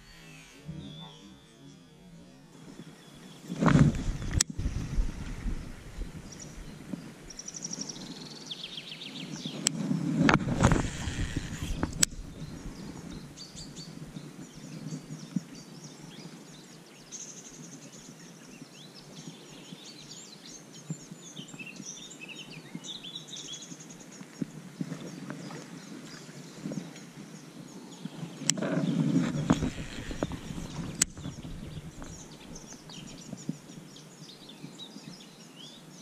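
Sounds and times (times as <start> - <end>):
songbirds singing: 0.0 - 36.0
sharp clicks: 3.6 - 4.6, 9.6 - 12.3, 29.2 - 32.2.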